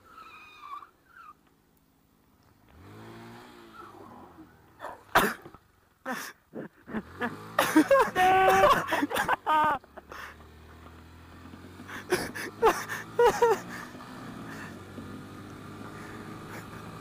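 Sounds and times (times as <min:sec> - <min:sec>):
motorcycle engine running: 0:06.8 - 0:17.0
person's voice: 0:07.9 - 0:09.2.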